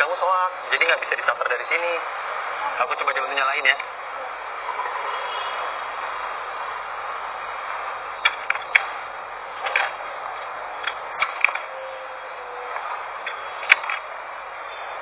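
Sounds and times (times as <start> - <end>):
steady background hiss: 0.0 - 15.0
sharp clicks and ticks: 8.2 - 9.0.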